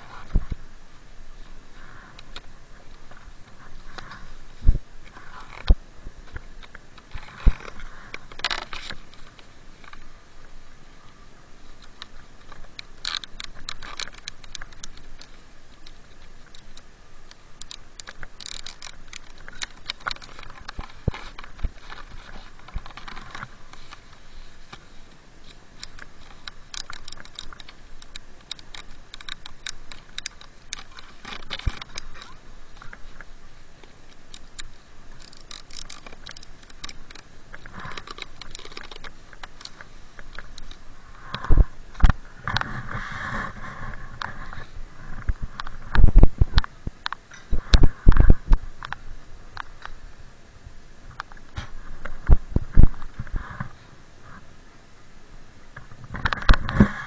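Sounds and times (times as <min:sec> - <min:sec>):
binding strap ratchets clicking: 0:13.0 - 0:16.8, 0:17.6 - 0:22.0, 0:25.8 - 0:32.3, 0:34.3 - 0:39.8.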